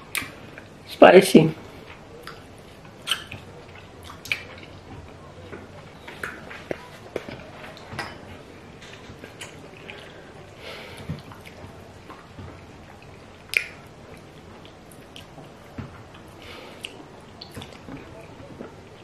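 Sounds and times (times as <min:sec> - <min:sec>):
wet chewing and lip smacks: 0:01.9 - 0:05.2, 0:09.2 - 0:10.2, 0:11.0 - 0:18.7.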